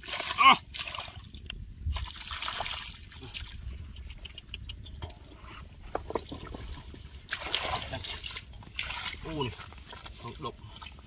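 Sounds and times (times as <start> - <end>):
hands splashing in muddy water: 0.0 - 1.3, 6.3 - 11.0
mud squelching clicks: 0.0 - 5.2.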